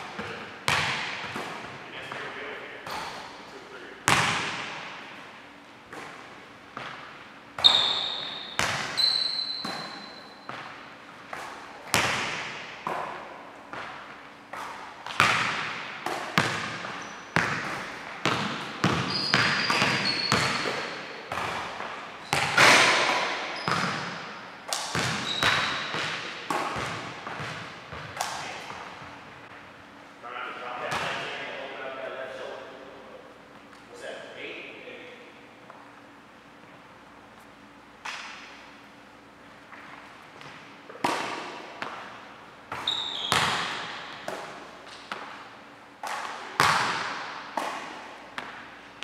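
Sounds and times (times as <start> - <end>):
basketball bouncing on wooden floor: 0.0 - 2.2, 7.6 - 10.8, 15.0 - 28.8, 42.7 - 44.5
sneaker squeaks: 0.0 - 5.2, 5.8 - 13.1, 13.7 - 29.2, 42.7 - 45.4.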